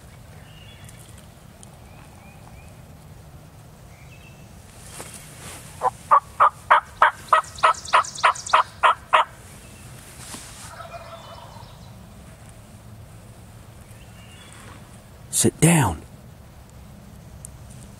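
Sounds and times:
turkey yelps: 5.8 - 9.3, 10.7 - 11.8.

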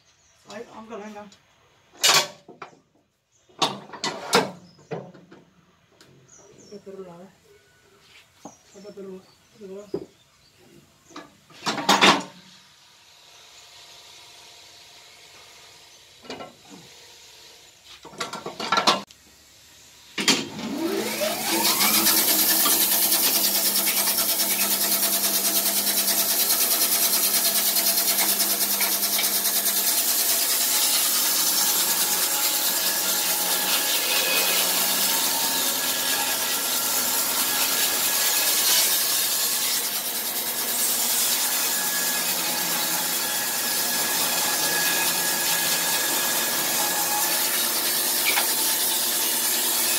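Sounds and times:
sawmill motor spinning up: 20.0 - 49.9
band saw cutting log: 20.1 - 49.9.

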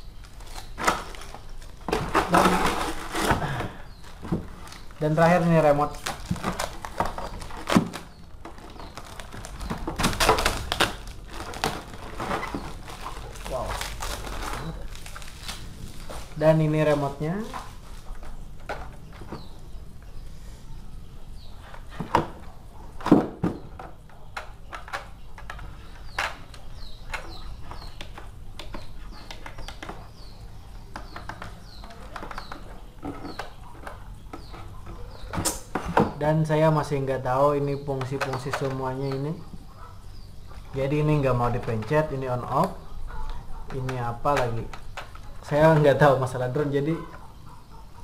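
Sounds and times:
bird chirping: 0.0 - 48.0
plastic crinkling and clicks: 5.9 - 19.2.

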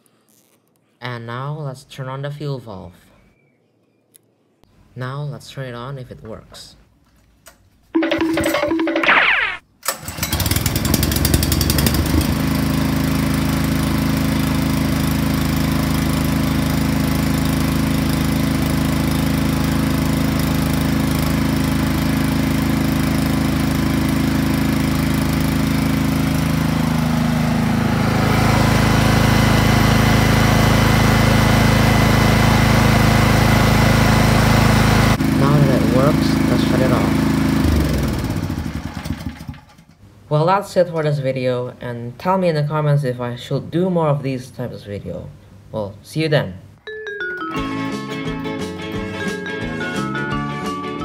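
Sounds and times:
pull-start whir: 8.0 - 12.7, 36.0 - 40.0
generator engine running: 8.0 - 40.0.

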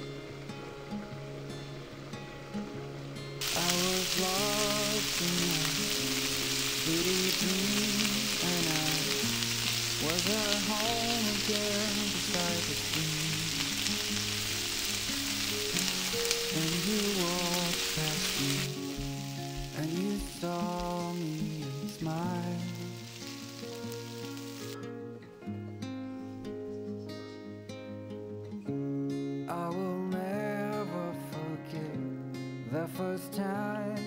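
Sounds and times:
background music: 0.0 - 34.0
corn sizzling in a pan: 3.4 - 24.8.

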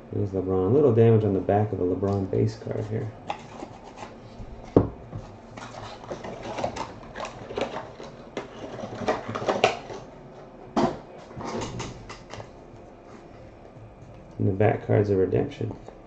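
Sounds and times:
cards and foil wrapper rustling: 5.5 - 10.1.

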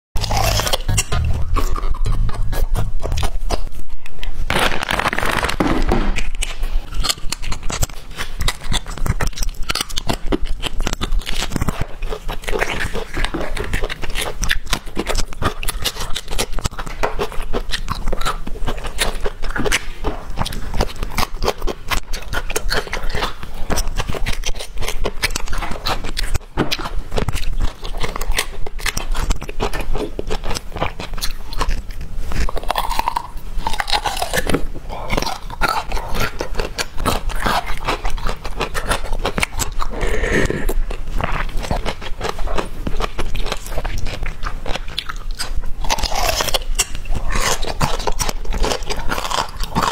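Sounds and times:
plastic bag crinkling: 0.2 - 10.2
crunchy bite: 0.2 - 49.9.

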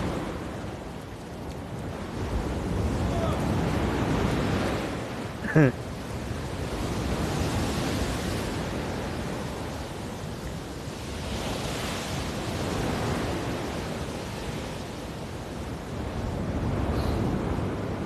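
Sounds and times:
choppy sea rushing: 0.0 - 18.0
wind buffeting microphone: 0.0 - 18.0.

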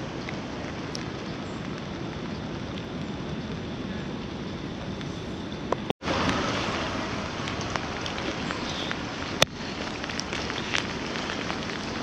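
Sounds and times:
rain on wet pavement: 0.0 - 12.0.

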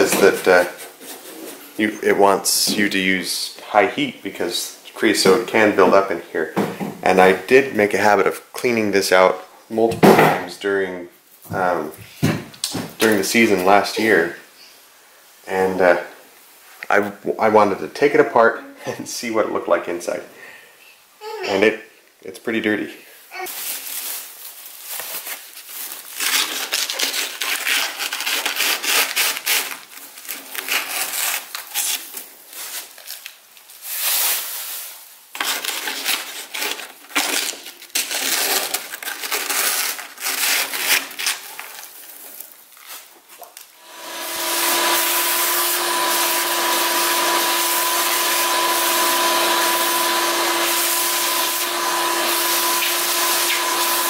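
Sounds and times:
vacuum cleaner humming: 43.8 - 54.0.

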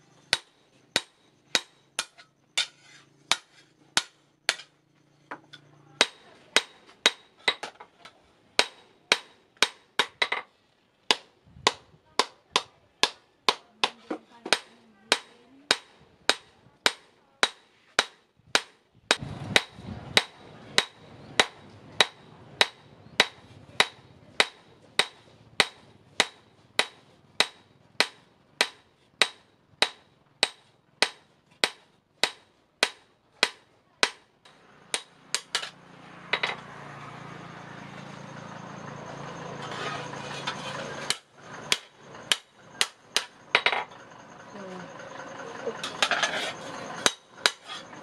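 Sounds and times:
hammer ringing on steel: 0.3 - 2.7, 19.6 - 35.8, 46.8 - 47.7.

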